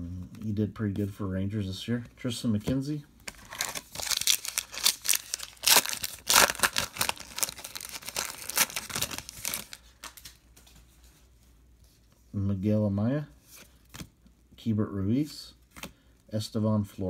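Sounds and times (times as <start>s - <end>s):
wrapper being torn and crinkled: 3.3s - 10.3s.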